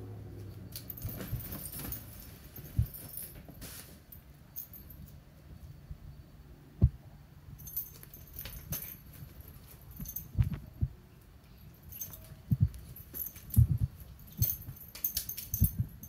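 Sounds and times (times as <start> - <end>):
light jingling clicks: 0.4 - 3.5, 7.6 - 16.0.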